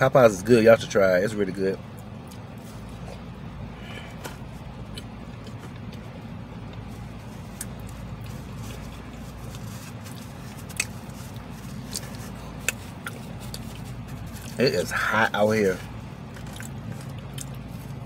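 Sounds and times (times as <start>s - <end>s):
idling car hum: 0.0s - 18.0s
chewing clicks: 16.4s - 17.6s.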